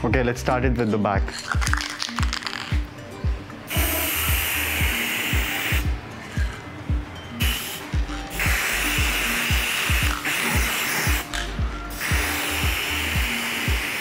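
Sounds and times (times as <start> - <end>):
spray paint can hissing: 1.4 - 2.8, 3.7 - 6.6, 7.4 - 14.0.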